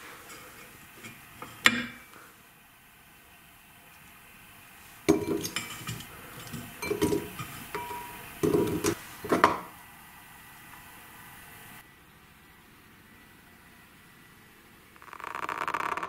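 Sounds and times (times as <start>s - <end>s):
metal clinks and knocks: 5.1s - 9.5s.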